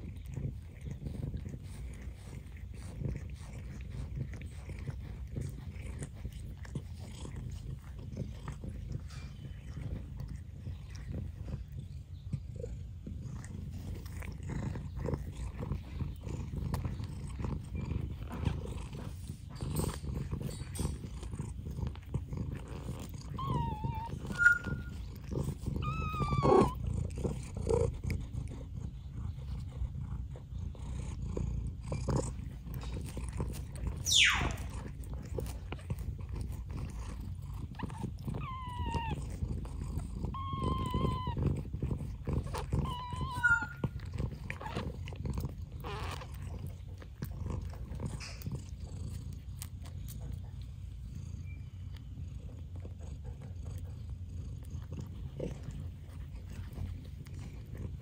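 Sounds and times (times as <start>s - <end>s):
kitten eating clicks: 0.0s - 43.1s, 43.7s - 51.1s
cat purring: 0.0s - 58.0s
kitten mewing: 23.3s - 26.8s, 33.7s - 35.6s, 40.3s - 44.1s.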